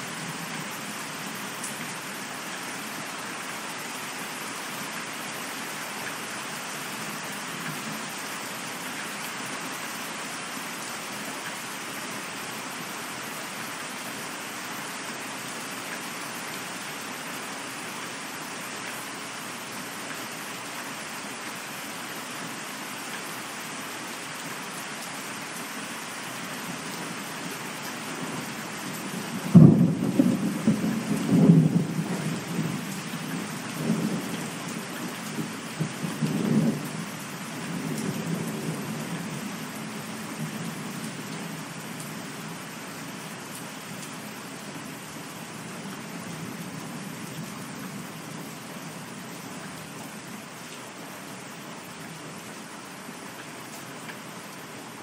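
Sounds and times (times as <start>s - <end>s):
steady rain: 0.0s - 55.0s
thunder clap and rumble: 29.5s - 32.4s.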